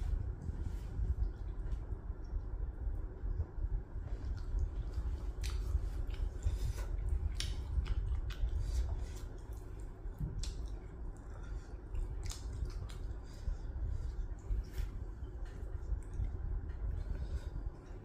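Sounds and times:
steady low hum: 0.0 - 18.0
chewing meat: 4.0 - 18.0.

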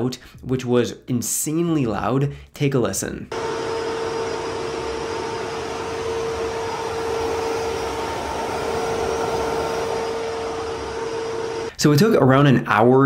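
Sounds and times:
cooling fans rushing loudly: 3.3 - 11.8
steady hum: 3.3 - 11.8.

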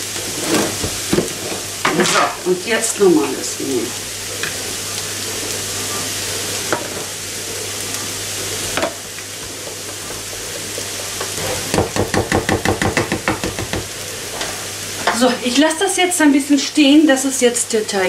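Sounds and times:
steady sizzling hiss: 0.0 - 18.0
whisk knocking bowl: 11.7 - 13.9.

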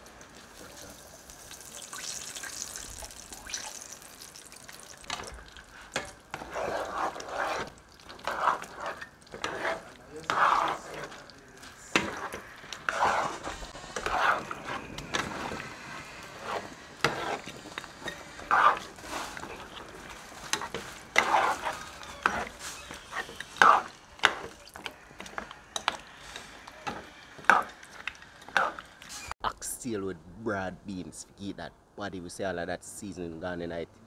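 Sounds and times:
metal spoon scraping pan: 5.9 - 29.3.

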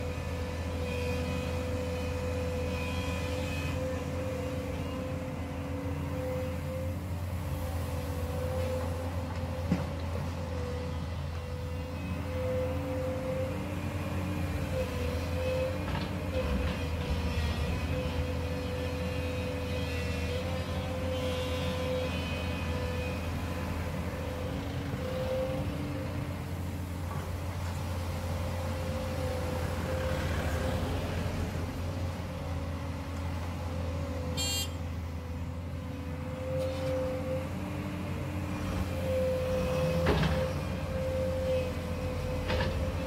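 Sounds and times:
engine whine: 23.0 - 43.0.

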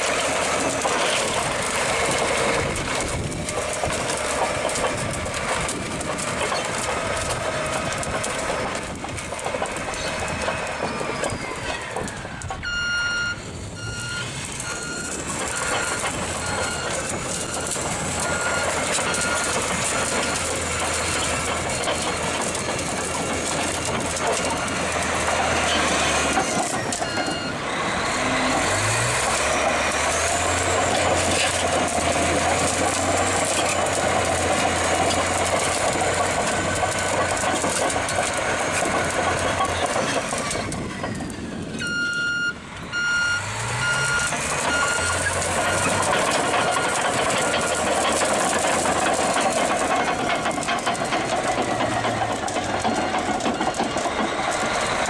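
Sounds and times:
clattering tracks: 0.0 - 12.7, 14.2 - 41.8, 44.2 - 55.0
bulldozer diesel engine revving: 0.0 - 55.0
reversing alarm beeping: 12.6 - 23.6, 24.2 - 29.0, 41.0 - 48.0.

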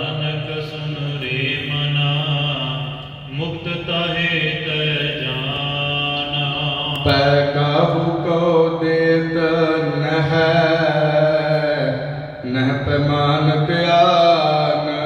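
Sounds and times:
devotional chanting: 0.0 - 15.0.

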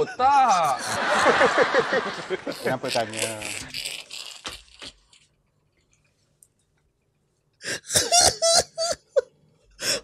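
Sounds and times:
man laughing: 0.0 - 3.3.

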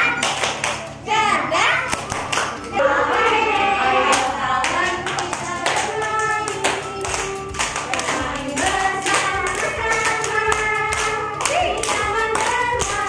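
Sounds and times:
rhythmic hand clapping: 0.0 - 1.0, 1.8 - 13.0
people singing: 2.7 - 13.0.

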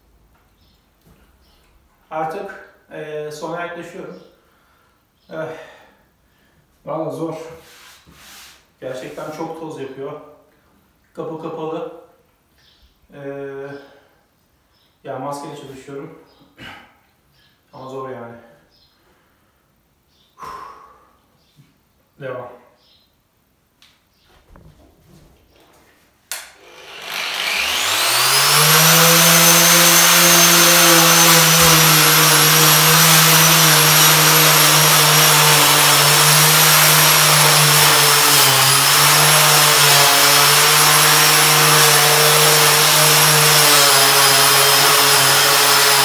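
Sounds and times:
sanding wooden floorboards: 7.5 - 9.3, 26.6 - 46.0
angle grinder whining: 26.3 - 46.0.

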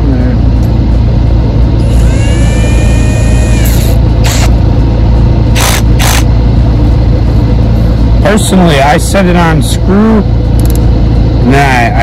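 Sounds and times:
loud steady low rumble: 0.0 - 12.0
short noisy rasps: 1.8 - 4.6, 5.5 - 6.3
cordless drill motor whining: 5.6 - 6.3.

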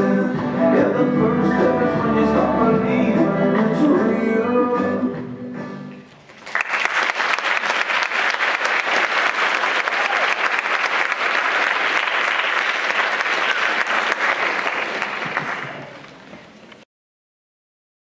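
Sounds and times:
song ending: 0.0 - 6.0
audience applause: 6.2 - 16.6.

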